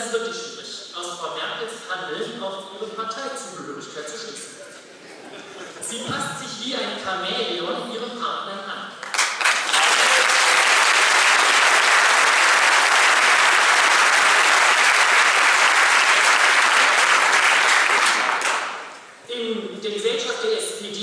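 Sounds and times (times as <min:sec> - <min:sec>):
audience applauding: 0:09.0 - 0:19.0.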